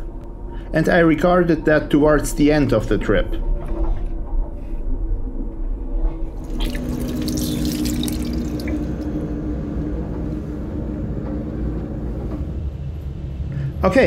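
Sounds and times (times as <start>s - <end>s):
low train rumble: 0.0s - 14.0s
steady hum: 0.0s - 14.0s
tap water running into steel basin: 6.4s - 9.2s.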